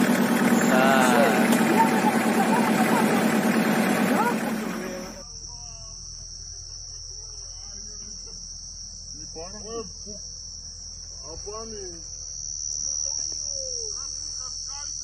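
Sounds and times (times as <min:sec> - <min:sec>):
night insects trilling: 0:00.0 - 0:15.0
faint voices: 0:00.5 - 0:05.3.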